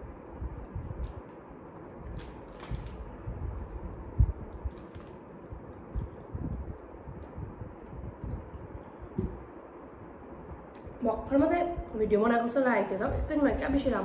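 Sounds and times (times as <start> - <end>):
paper and foil wrapping crinkling: 2.2 - 3.0, 4.7 - 5.3
low thumps: 9.1 - 9.6.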